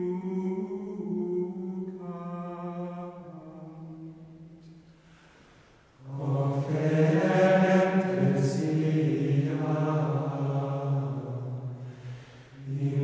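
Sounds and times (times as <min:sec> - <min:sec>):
low voices chanting: 0:06.0 - 0:13.0.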